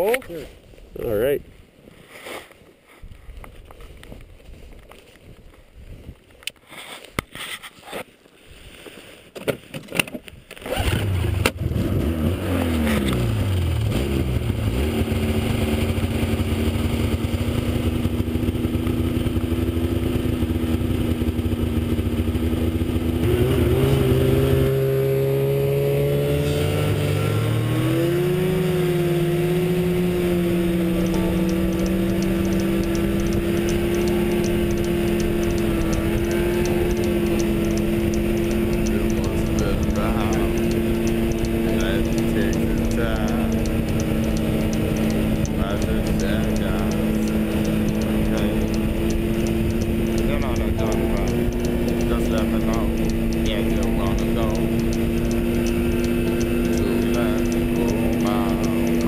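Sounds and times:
snowmobile engine: 0:10.7 - 0:59.0.

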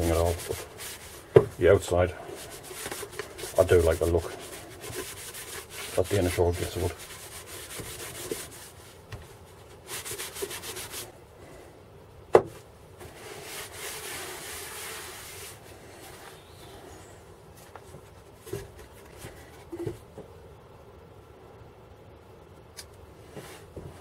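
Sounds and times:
cloth rag rubbing wood: 0:00.0 - 0:11.2, 0:13.0 - 0:16.4.

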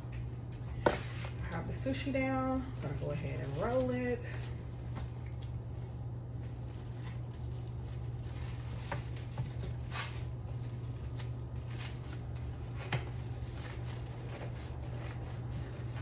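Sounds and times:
steady low hum: 0:00.0 - 0:16.0
hands rustling and tapping: 0:04.9 - 0:16.0.

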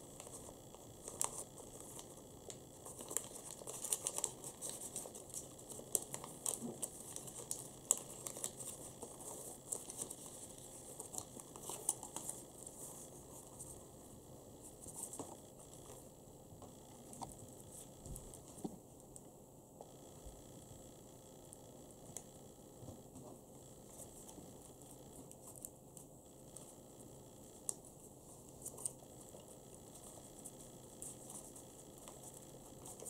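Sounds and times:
paper crinkling and crackling: 0:00.2 - 0:13.9, 0:27.6 - 0:33.0.

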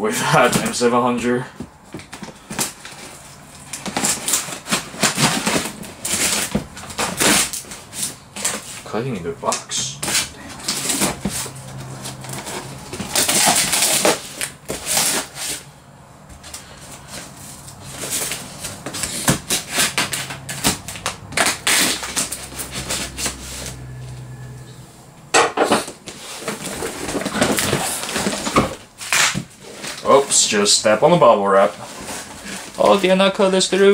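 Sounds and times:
plastic crinkling: 0:01.9 - 0:15.7, 0:16.4 - 0:24.4, 0:25.8 - 0:33.9
knife slicing tape and cardboard: 0:29.0 - 0:30.0.

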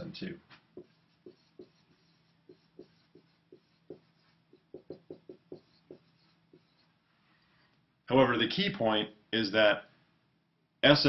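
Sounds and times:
marker squeaking on whiteboard: 0:00.6 - 0:07.0.

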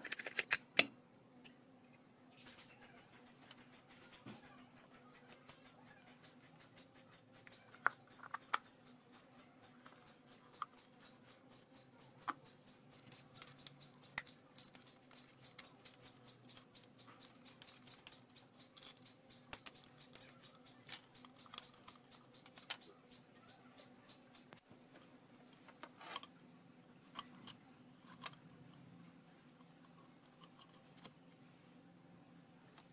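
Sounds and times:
faint low hum: 0:00.0 - 0:32.9.

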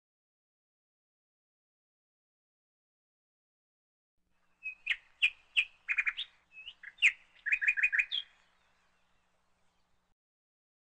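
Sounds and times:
bird chirping: 0:04.4 - 0:10.1.

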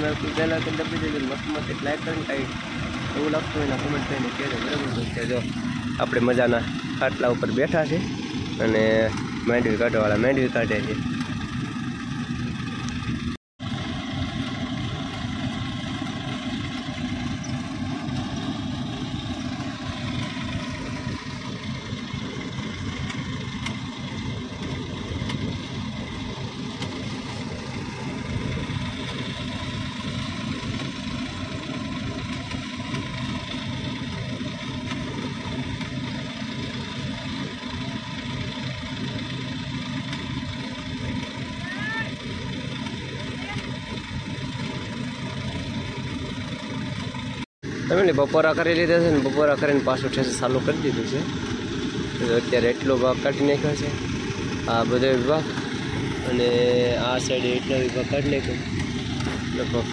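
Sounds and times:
tractor engine and thresher hum: 0:00.0 - 0:59.9.

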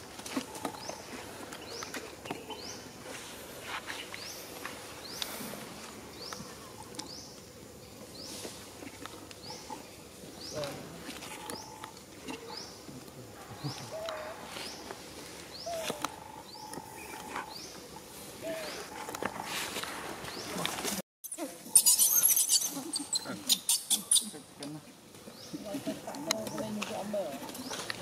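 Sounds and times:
low wavering animal calls: 0:15.6 - 0:19.8
animal rising chirp: 0:21.6 - 0:24.3.

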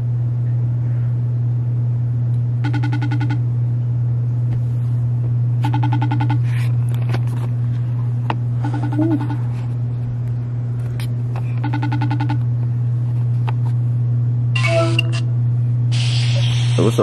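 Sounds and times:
steady low hum: 0:00.0 - 0:17.0
phone ringback tone: 0:02.6 - 0:03.4, 0:05.6 - 0:06.4, 0:08.6 - 0:09.4, 0:11.6 - 0:12.4.

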